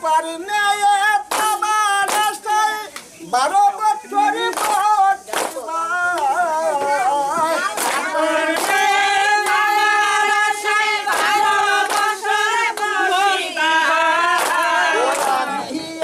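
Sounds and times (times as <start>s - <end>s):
sharp claps: 1.1s - 3.2s, 4.4s - 16.0s
women singing without instruments: 5.9s - 16.0s.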